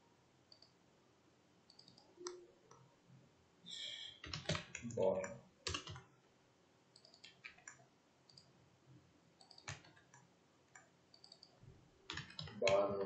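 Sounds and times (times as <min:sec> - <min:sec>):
keyboard and mouse clicks: 0:00.5 - 0:00.8, 0:01.7 - 0:02.9, 0:04.2 - 0:06.1, 0:07.0 - 0:08.5, 0:09.4 - 0:13.0.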